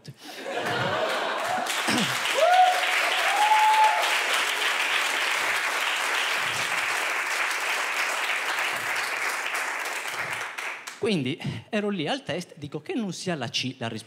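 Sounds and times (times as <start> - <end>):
audience applauding: 0.5 - 11.0.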